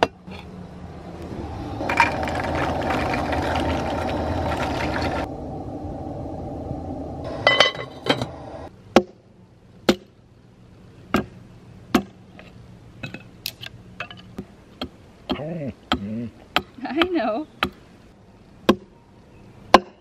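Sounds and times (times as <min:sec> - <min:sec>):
hatchet striking wood: 0:09.9 - 0:10.1, 0:11.1 - 0:11.3, 0:11.9 - 0:12.2, 0:14.8 - 0:17.8, 0:18.7 - 0:18.9, 0:19.7 - 0:20.0.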